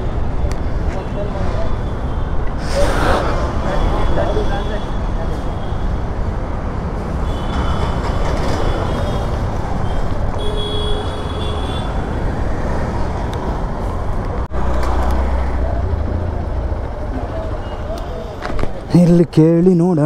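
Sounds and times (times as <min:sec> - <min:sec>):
road traffic rumble: 0:00.0 - 0:20.0.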